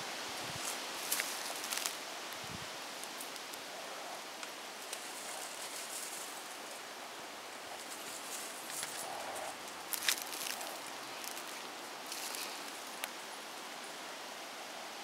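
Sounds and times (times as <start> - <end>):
steady outdoor hiss: 0.0 - 15.0
straps and bags rustling: 0.6 - 2.0, 7.9 - 13.0.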